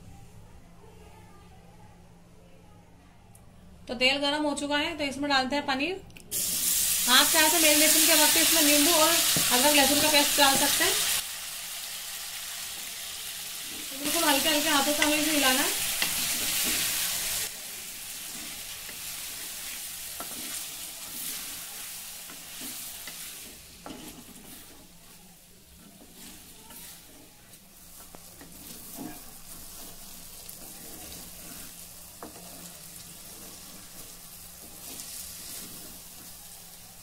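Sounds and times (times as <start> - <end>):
food sizzling in oil: 6.3 - 37.0
wooden spatula scraping pan: 13.6 - 17.5, 18.1 - 36.4.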